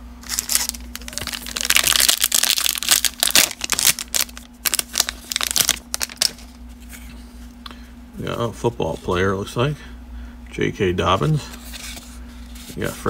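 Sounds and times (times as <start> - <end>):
plastic wrapper tearing and crinkling: 0.2 - 6.6.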